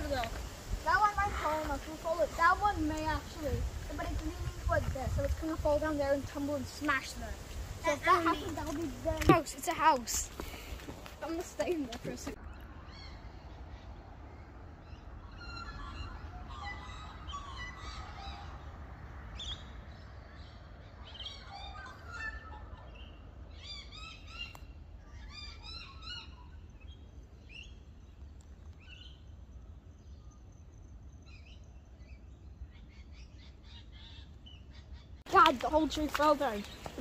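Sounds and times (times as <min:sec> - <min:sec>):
birds chirping: 0:00.0 - 0:37.0.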